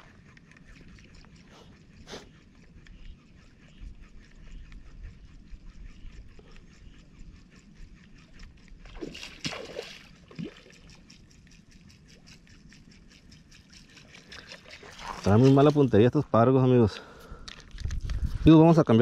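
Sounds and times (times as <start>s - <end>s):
fish splashing on water surface: 8.8s - 11.0s.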